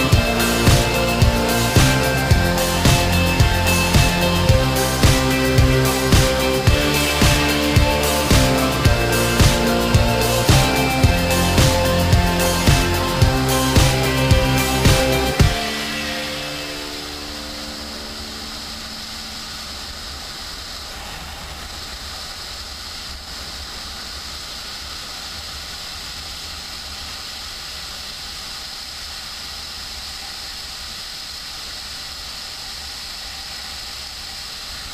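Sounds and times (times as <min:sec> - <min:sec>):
music track: 0:00.0 - 0:20.3.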